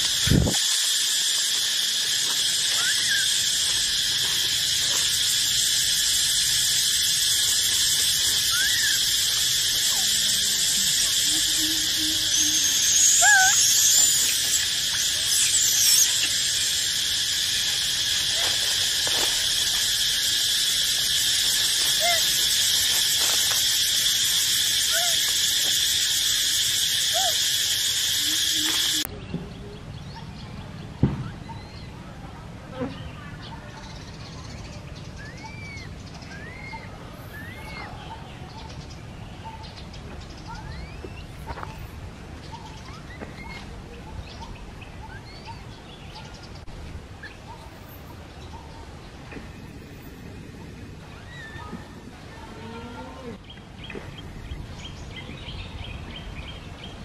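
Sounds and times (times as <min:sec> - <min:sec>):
forest insects chorus: 0:00.0 - 0:30.2, 0:31.0 - 0:57.0
high squealing: 0:07.0 - 0:18.6.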